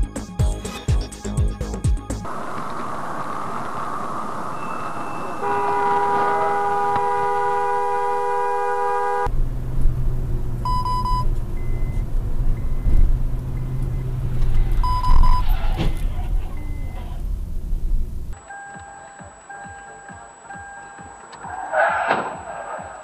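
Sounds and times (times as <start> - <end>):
road rumble inside car: 2.2 - 18.4
car horn honking: 4.6 - 9.4, 10.6 - 17.5
short high beeps: 10.7 - 12.0, 14.8 - 15.5, 16.6 - 17.0.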